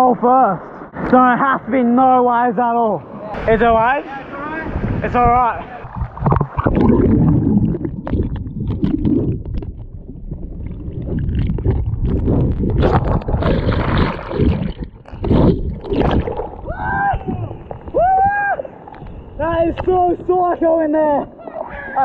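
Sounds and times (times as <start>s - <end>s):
churning water underwater: 4.5s - 20.3s.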